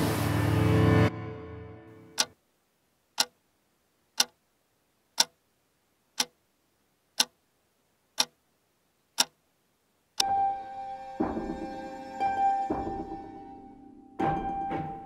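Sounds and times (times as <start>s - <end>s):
clock ticking: 2.2s - 2.4s, 3.1s - 3.4s, 4.1s - 4.4s, 5.1s - 5.5s, 6.1s - 6.5s, 7.1s - 7.4s, 8.1s - 8.4s, 9.1s - 9.5s, 10.1s - 10.3s.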